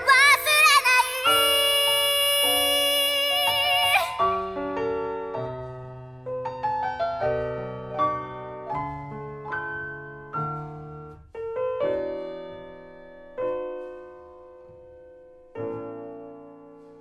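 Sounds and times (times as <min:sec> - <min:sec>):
solo piano chords: 0:00.0 - 0:17.0.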